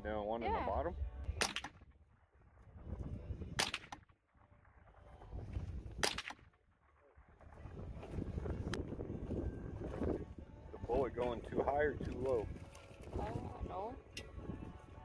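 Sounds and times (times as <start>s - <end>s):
rifle shots: 1.4s - 1.8s, 3.6s - 4.0s, 6.0s - 6.5s.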